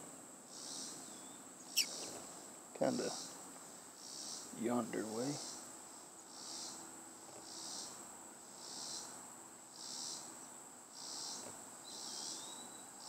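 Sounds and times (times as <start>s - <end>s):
insect chorus shrilling: 0.5s - 2.2s, 4.0s - 6.8s, 7.4s - 8.0s, 8.6s - 10.3s, 10.9s - 13.0s.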